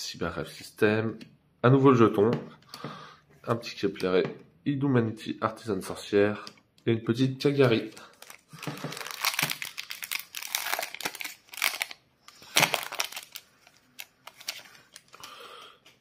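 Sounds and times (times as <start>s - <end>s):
foil wrapper crinkling and tearing: 8.0s - 15.4s.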